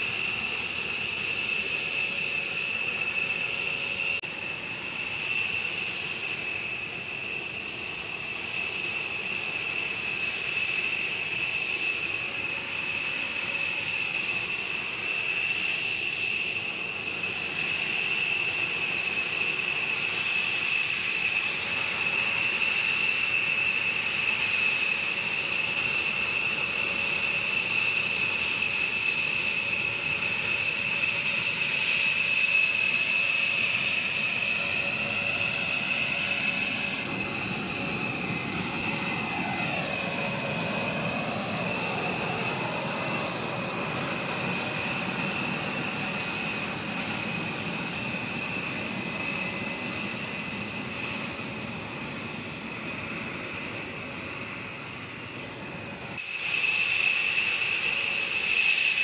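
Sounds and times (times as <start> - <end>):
jet engine rumble: 0.0 - 59.0
jet engine turbine whine: 0.0 - 59.0.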